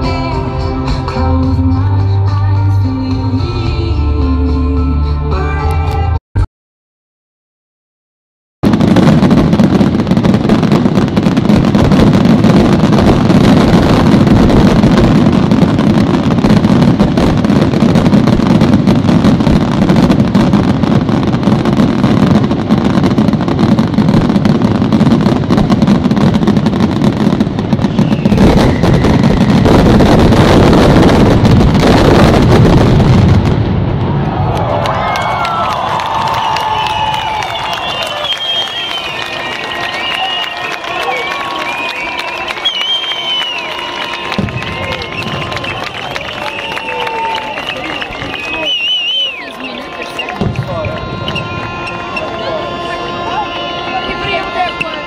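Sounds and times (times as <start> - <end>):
fireworks bursting and crackling: 8.6 - 55.0.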